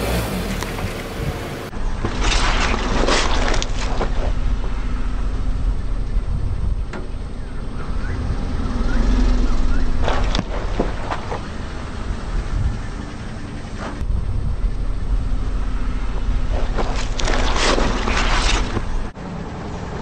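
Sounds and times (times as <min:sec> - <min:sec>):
low rumble of car: 0:00.0 - 0:20.0
tyre crunching pineapple: 0:02.0 - 0:04.4, 0:16.4 - 0:19.1.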